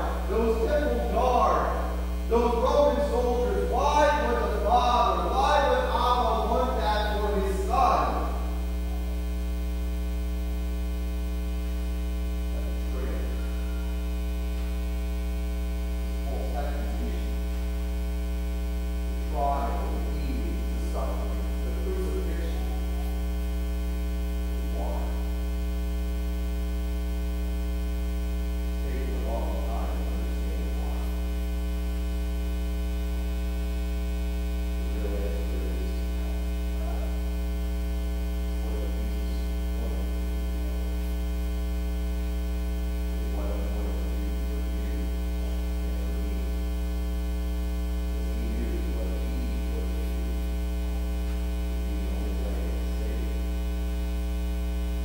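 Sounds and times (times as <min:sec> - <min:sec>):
faint man's voice: 0:00.0 - 0:08.6, 0:12.5 - 0:13.9, 0:16.2 - 0:17.3, 0:19.3 - 0:23.2, 0:24.7 - 0:25.3, 0:28.8 - 0:31.2, 0:34.9 - 0:37.2, 0:38.6 - 0:41.0, 0:43.2 - 0:46.5, 0:48.2 - 0:50.3, 0:51.9 - 0:53.4
loud mains hum: 0:00.0 - 0:55.0.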